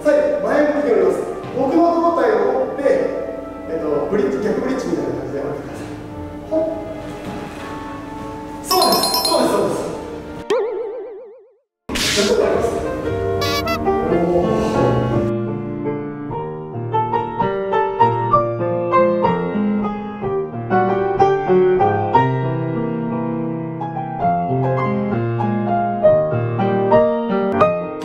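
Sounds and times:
gentle piano melody: 7.8s - 10.4s.

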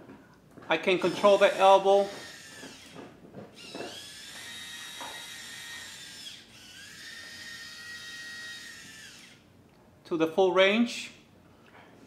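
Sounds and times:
servo motor whining: 1.0s - 9.4s.

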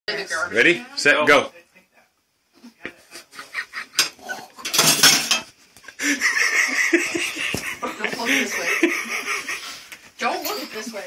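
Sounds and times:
metal spoon clinking on dishes: 4.0s - 5.5s.

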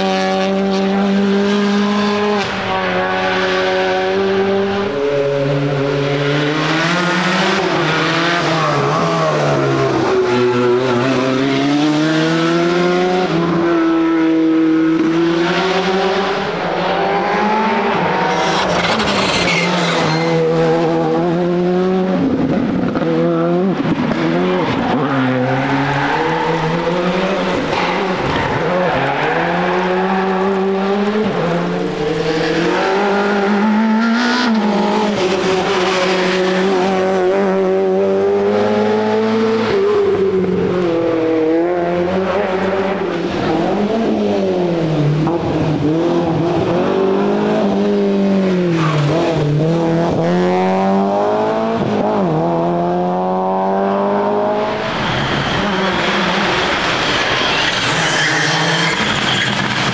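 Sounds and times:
rally car engines revving: 0.0s - 59.9s
steady high whine: 54.5s - 58.1s.

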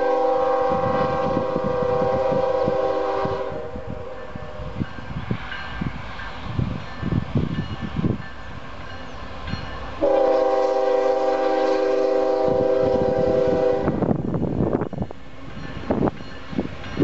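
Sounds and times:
locomotive air horn: 0.0s - 4.8s, 10.0s - 14.1s
train rumble: 0.0s - 17.0s.

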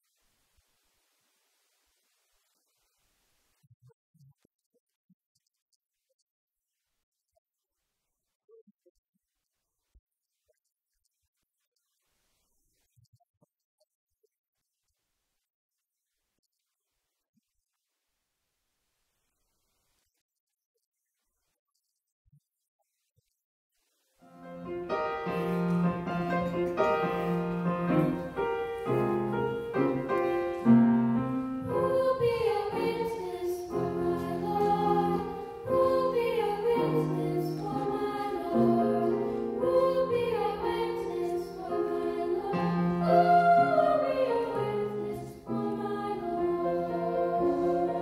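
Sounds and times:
choir singing: 24.3s - 48.0s
keyboard accompaniment: 24.3s - 48.0s.

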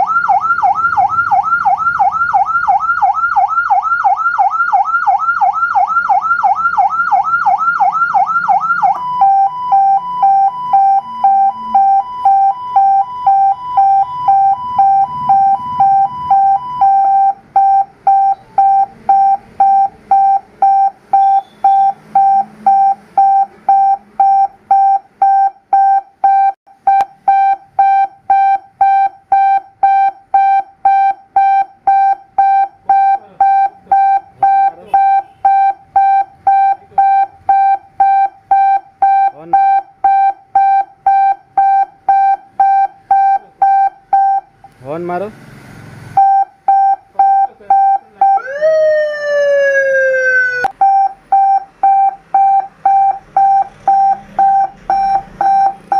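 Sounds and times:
siren yelp: 0.0s - 17.4s, 47.2s - 50.8s
single-pitch siren beeps: 0.0s - 44.5s, 50.7s - 55.9s
two-pitch siren beeps: 0.0s - 44.5s, 46.2s - 48.5s, 50.3s - 55.9s.

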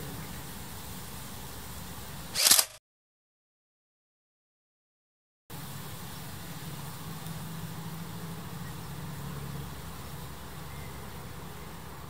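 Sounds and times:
constant hiss: 0.0s - 2.7s, 5.5s - 12.0s
low engine-like drone: 5.5s - 12.0s.

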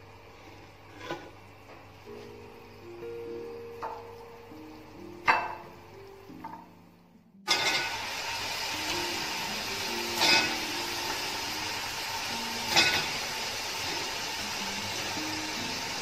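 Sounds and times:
chicken sizzling in hot oil: 7.5s - 16.0s.

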